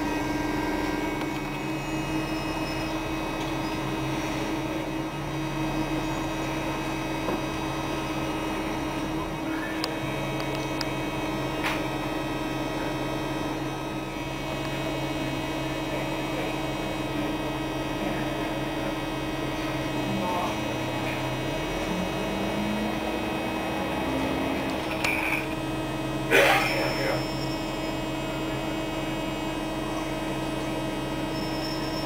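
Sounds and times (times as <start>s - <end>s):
bus engine and ventilation hum: 0.0s - 32.0s.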